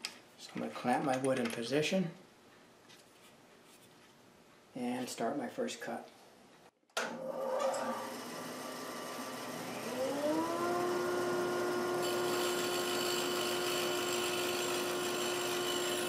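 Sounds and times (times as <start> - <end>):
bandsaw motor humming: 7.2 - 16.0.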